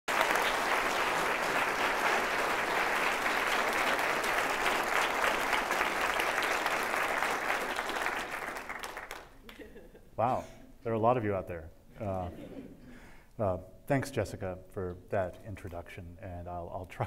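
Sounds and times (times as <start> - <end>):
audience applauding: 0.1 - 9.7.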